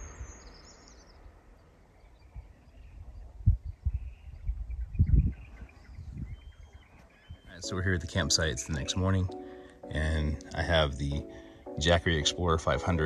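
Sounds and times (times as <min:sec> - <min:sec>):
wind buffeting microphone: 0:00.0 - 0:07.7
faint bird chirps: 0:00.0 - 0:08.1.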